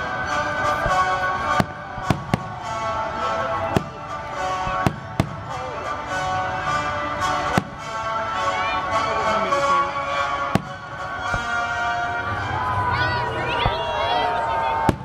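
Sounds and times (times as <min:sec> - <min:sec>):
background music: 0:00.0 - 0:15.0
firework shells bursting: 0:10.3 - 0:11.7.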